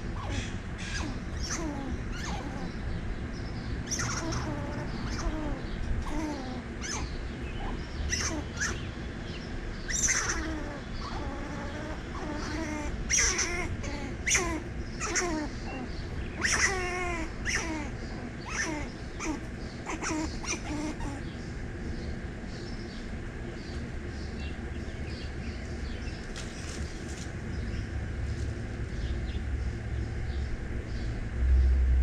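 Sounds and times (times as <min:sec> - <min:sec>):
steady low rumble: 0:00.0 - 0:32.0
short animal calls: 0:09.9 - 0:21.2.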